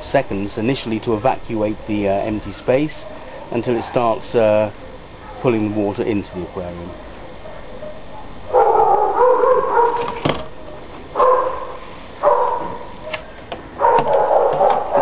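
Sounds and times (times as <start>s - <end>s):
dog barking: 3.0s - 4.2s, 4.8s - 5.8s, 6.9s - 15.0s.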